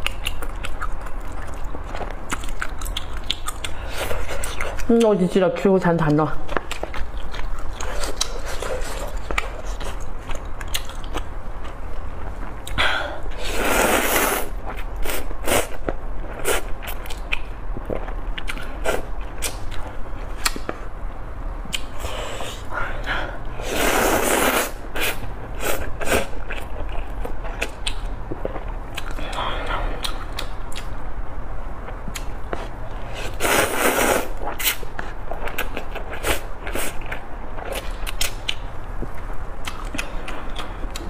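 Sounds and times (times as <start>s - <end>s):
person chewing noodles: 0.0s - 5.1s, 6.4s - 20.9s, 21.6s - 31.0s, 31.8s - 41.0s
wet mouth clicks: 2.3s - 3.8s
long slurps: 13.4s - 14.5s, 23.6s - 26.3s, 33.1s - 34.8s.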